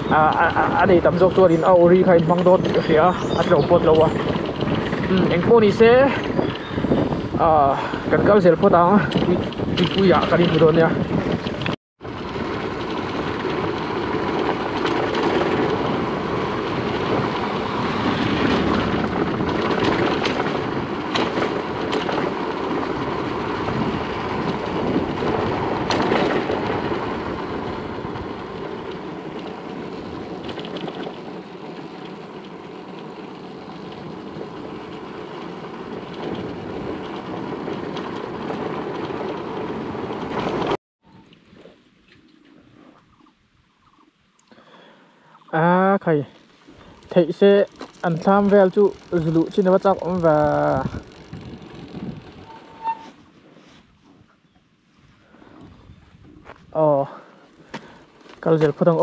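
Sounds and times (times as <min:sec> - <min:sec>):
motorcycle engine: 0:00.0 - 0:08.0, 0:08.7 - 0:40.8, 0:46.8 - 0:53.1
wind noise: 0:00.0 - 0:41.7, 0:46.2 - 0:59.0.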